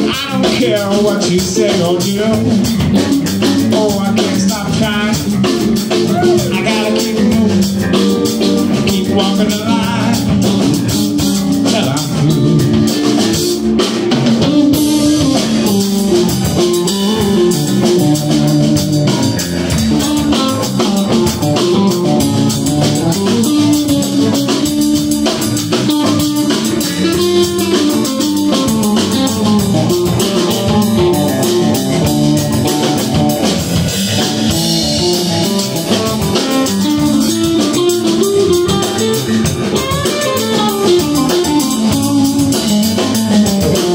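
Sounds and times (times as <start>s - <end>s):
drum kit: 0.0s - 43.9s
electric bass: 0.0s - 43.9s
electric guitar: 0.0s - 43.9s.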